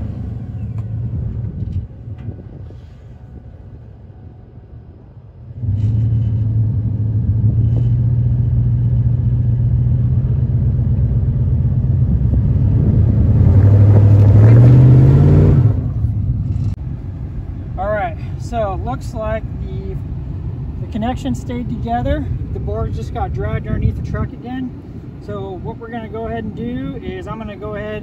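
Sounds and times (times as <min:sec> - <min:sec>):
truck engine revving: 0:05.5 - 0:17.3
tire spinning in sand: 0:05.6 - 0:16.7.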